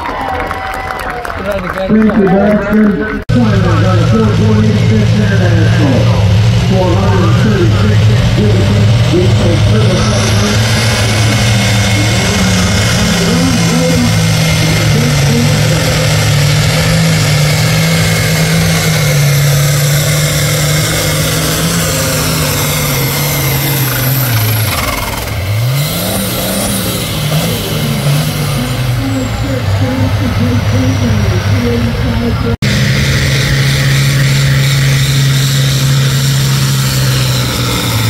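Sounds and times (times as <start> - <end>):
tractor diesel engine at full load: 1.2 - 38.0.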